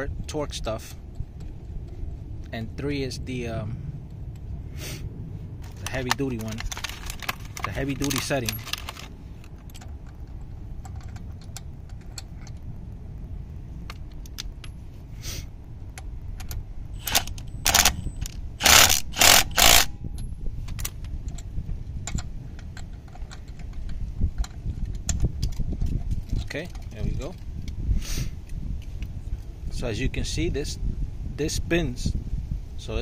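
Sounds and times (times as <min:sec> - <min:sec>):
impact wrench bursts: 0:17.0 - 0:18.0, 0:18.6 - 0:19.9.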